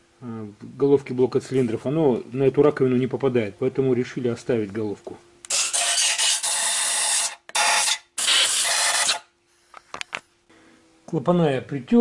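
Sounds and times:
compressed air blow gun blasting: 0:05.5 - 0:09.2.

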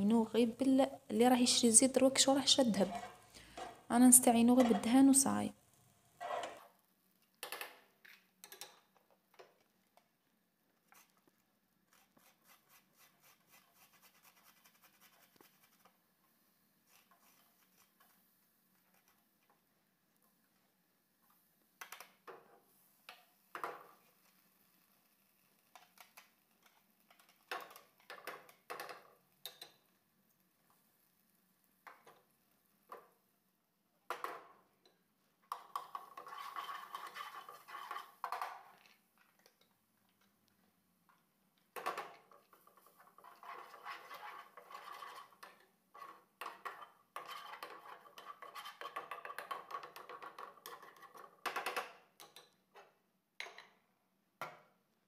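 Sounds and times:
wooden spoon scraping a pan: 0:02.6 - 0:05.2, 0:06.2 - 0:06.7, 0:16.8 - 0:19.4, 0:35.5 - 0:39.6, 0:41.9 - 0:51.4.

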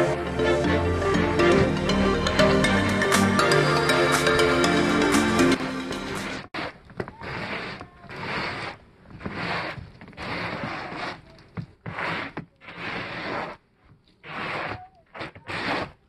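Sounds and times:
snow rake scraping snow: 0:06.4 - 0:16.0.

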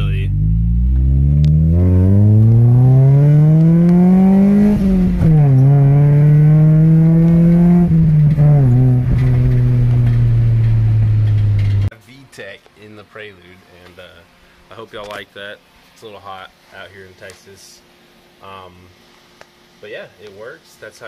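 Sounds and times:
car engine accelerating: 0:00.0 - 0:11.9.

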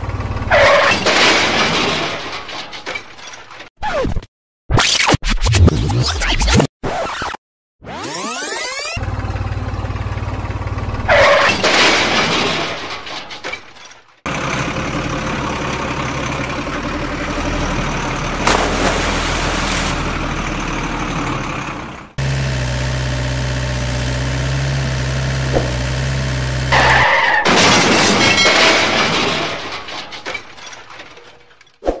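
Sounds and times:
vehicle engine sound effects: 0:17.4 - 0:27.4.

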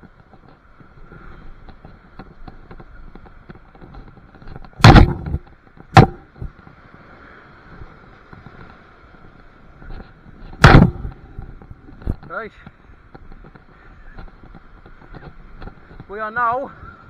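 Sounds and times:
loud knocks: 0:04.8 - 0:06.4, 0:10.5 - 0:11.2.

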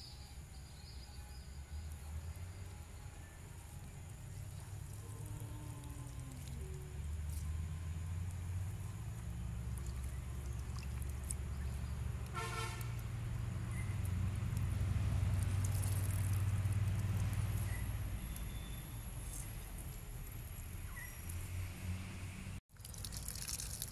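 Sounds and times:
low engine drone: 0:00.0 - 0:22.6
short horn toot: 0:12.3 - 0:13.0.

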